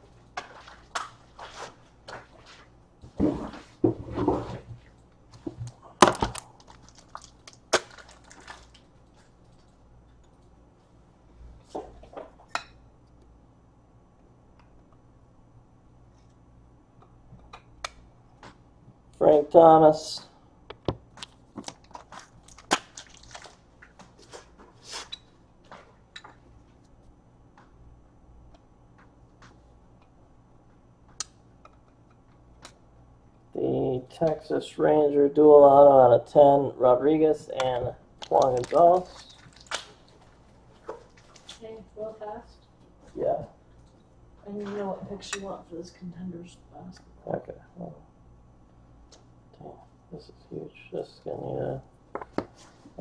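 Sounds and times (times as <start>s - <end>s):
trading cards being handled: 38.2s - 41.6s.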